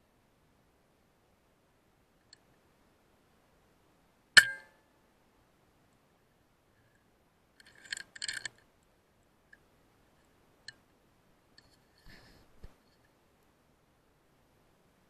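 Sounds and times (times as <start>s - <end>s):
rifle clicks and rattles: 7.6s - 8.6s.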